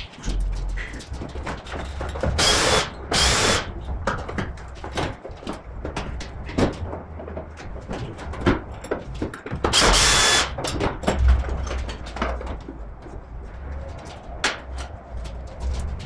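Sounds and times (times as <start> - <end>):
power tool burst: 2.4 - 3.7, 9.7 - 10.6.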